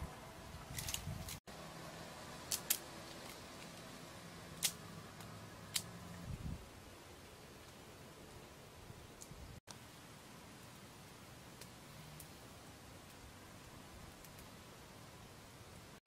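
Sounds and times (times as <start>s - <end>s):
dry twigs snapping: 0.7s - 1.4s, 2.5s - 3.9s, 4.6s - 5.9s.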